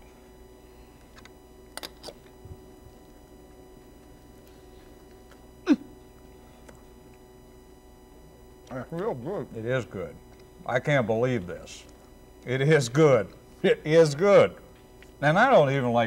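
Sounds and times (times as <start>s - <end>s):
electrical hum: 0.0s - 16.0s
men chewing food: 0.9s - 7.2s
man humming mmm: 5.6s - 6.0s.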